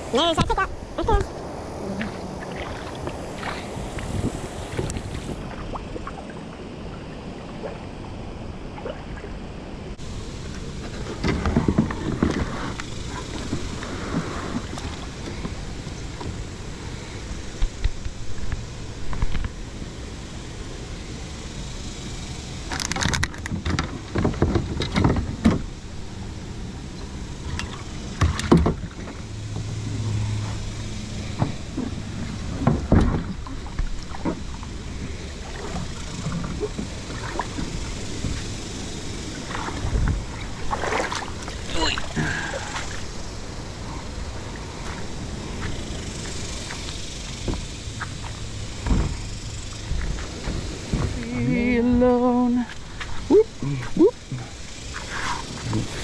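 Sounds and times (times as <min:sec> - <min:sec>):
steady background noise: 0:00.0 - 0:56.0
plastic kayak knocks and scrapes: 0:10.9 - 0:12.8.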